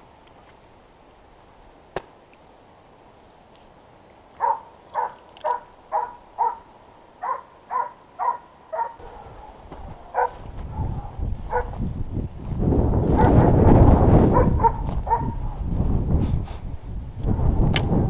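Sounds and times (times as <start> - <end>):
dog barking: 4.4 - 11.8, 14.3 - 15.4.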